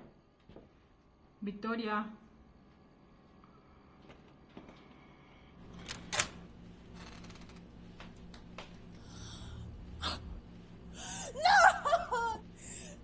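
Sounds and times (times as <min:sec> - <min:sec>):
person gasping breath: 0:09.0 - 0:10.2, 0:10.9 - 0:11.4, 0:12.6 - 0:13.0.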